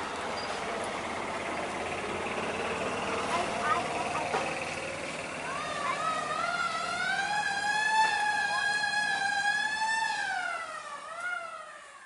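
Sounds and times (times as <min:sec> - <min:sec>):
vehicle siren wailing: 0:05.4 - 0:12.0.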